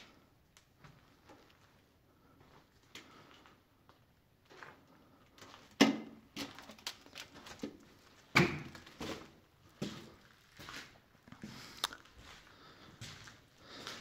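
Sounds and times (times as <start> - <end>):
footsteps on hard floor: 12.2 - 14.0.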